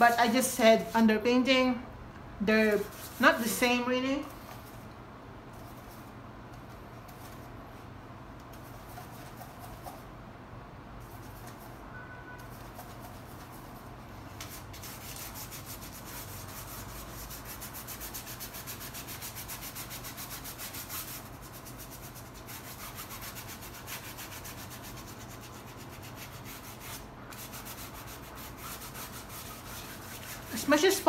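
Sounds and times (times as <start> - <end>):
paintbrush scrubbing canvas: 2.6 - 4.8, 8.5 - 10.0, 14.4 - 31.0.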